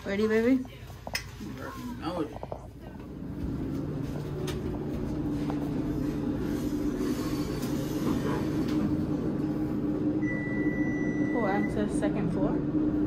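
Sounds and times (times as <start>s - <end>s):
elevator mechanical hum: 2.8s - 13.0s.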